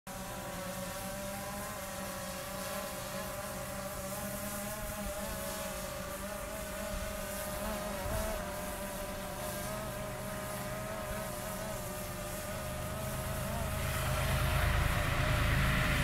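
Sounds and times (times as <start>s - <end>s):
locomotive engine drone: 10.1s - 16.0s
wavering whine: 10.2s - 16.0s.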